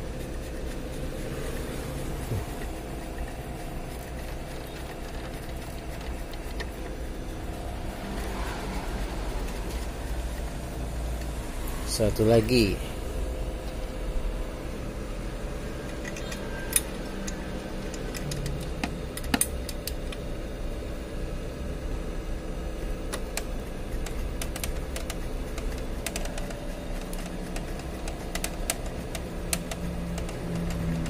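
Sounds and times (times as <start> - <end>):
steady hum: 0.0 - 31.0
sharp clicks and taps of parts: 15.8 - 20.2, 23.1 - 31.0.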